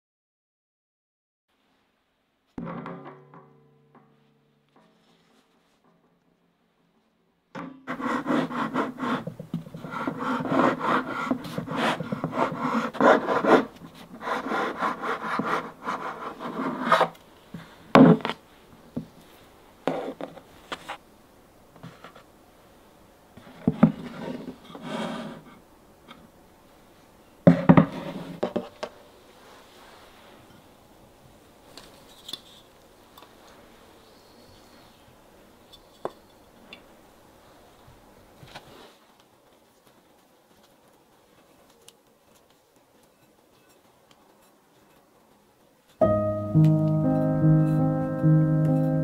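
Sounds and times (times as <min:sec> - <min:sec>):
knife rasping through sponge cake: 0:07.9 - 0:17.2.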